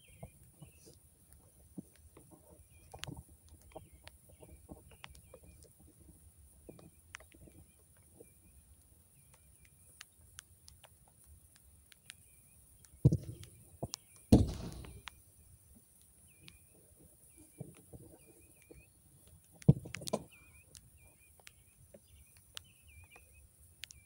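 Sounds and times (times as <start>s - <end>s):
bird chirps: 0.0s - 24.0s
ball banging against boards: 14.3s - 15.0s.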